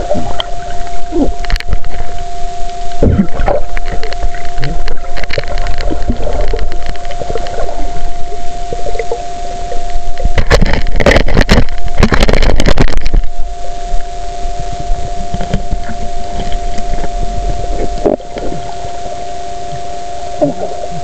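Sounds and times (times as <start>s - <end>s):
muffled water noise: 0.0s - 21.0s
two-tone hum: 0.0s - 21.0s
knocks and scrapes: 10.2s - 13.3s.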